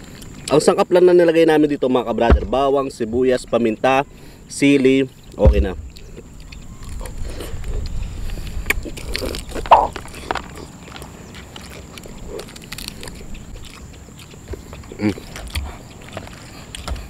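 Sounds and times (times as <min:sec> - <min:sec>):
chewing with wet clicks and smacks: 0:00.0 - 0:00.8, 0:04.6 - 0:17.0.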